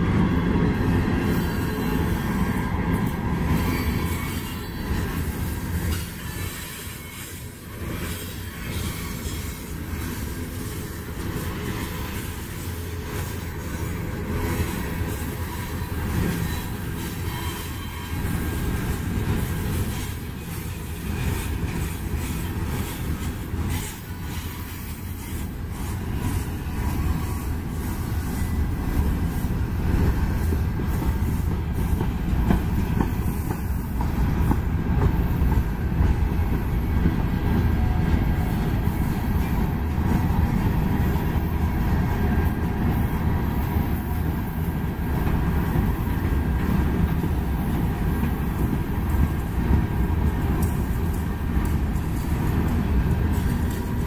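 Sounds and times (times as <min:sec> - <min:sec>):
train wheels rumbling on rails: 0:00.0 - 0:54.0
clicking over rail joints: 0:48.1 - 0:54.0.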